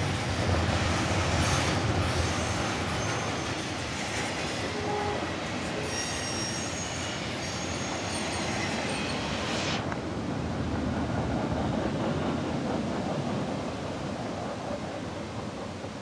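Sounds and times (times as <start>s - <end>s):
freight train wheels on rail: 0.0s - 16.0s
high-pitched wheel squeals: 4.4s - 9.2s.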